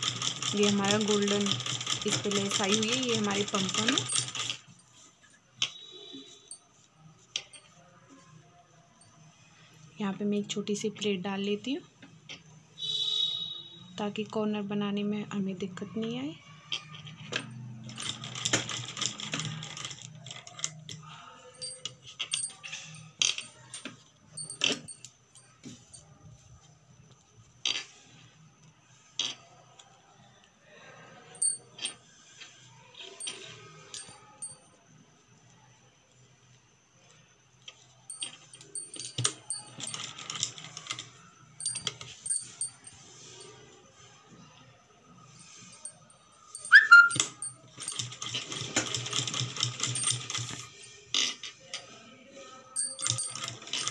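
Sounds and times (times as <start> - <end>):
sewing machine stitching: 0.0 - 4.6, 47.8 - 50.6.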